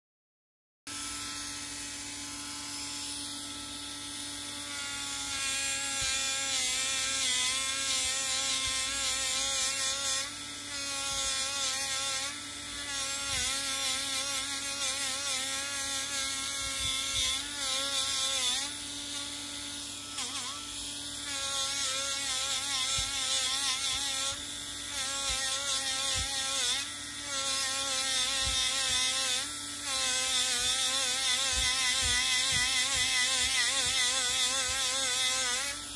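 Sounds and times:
rotary tool motor whine: 0.9s - 35.9s.

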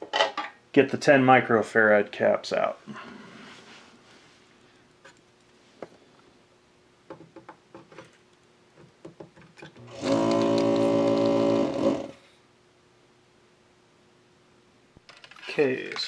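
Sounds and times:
desoldering vacuum pump buzzing: 9.6s - 12.2s.

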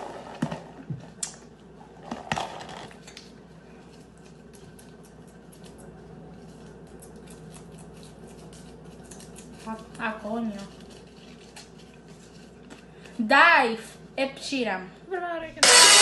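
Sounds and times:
paper crinkling: 3.0s - 13.1s.

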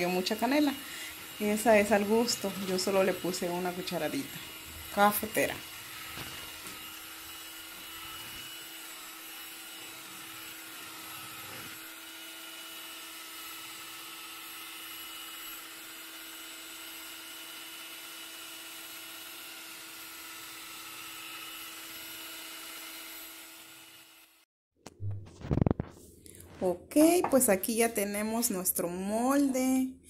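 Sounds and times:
beaters churning batter: 0.0s - 21.8s
electric hand mixer running: 0.0s - 24.5s.

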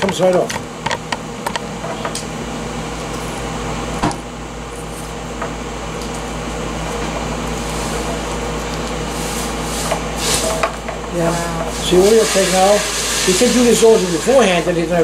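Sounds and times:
kitchen equipment humming: 0.0s - 15.0s.

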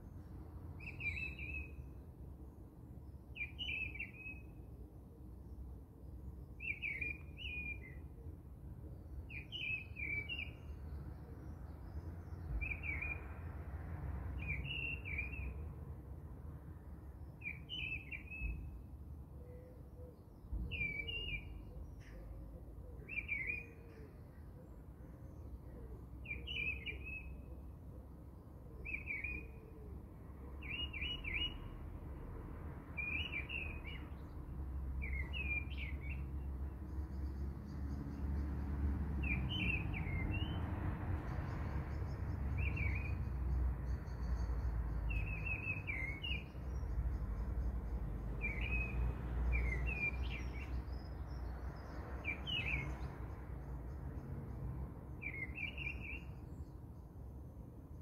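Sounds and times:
small bird chirping: 41.9s - 54.0s.

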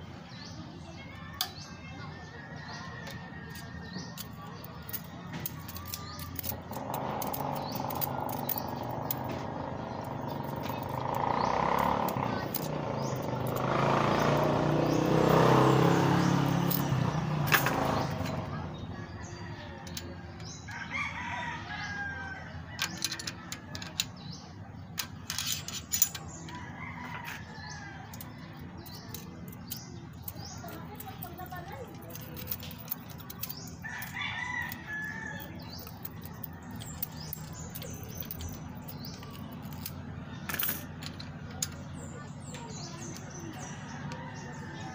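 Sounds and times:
engine humming: 0.0s - 44.9s
metallic clicks of tools: 22.8s - 24.2s, 25.0s - 26.6s.

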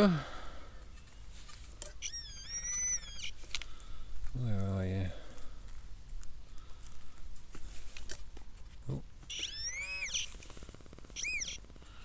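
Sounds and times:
metal detector signal tone: 2.0s - 3.3s, 9.3s - 10.3s, 11.2s - 11.6s.

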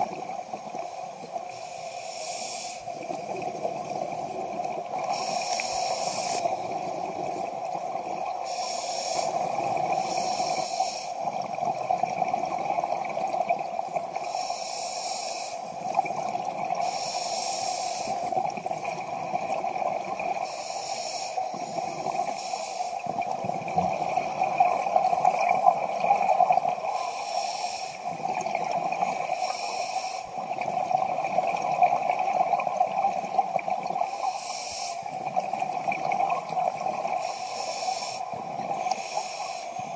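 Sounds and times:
regulator breathing hiss: 1.5s - 3.0s, 5.1s - 6.6s, 8.4s - 11.3s, 14.2s - 15.8s, 16.8s - 18.3s, 20.4s - 23.1s, 26.9s - 28.2s, 29.1s - 30.4s, 34.0s - 35.2s, 37.2s - 39.9s
exhaled bubbles: 2.9s - 8.6s, 9.2s - 14.4s, 15.6s - 17.0s, 18.0s - 20.5s, 23.0s - 27.1s, 28.0s - 29.5s, 30.3s - 34.3s, 34.9s - 37.4s, 38.1s - 39.0s.

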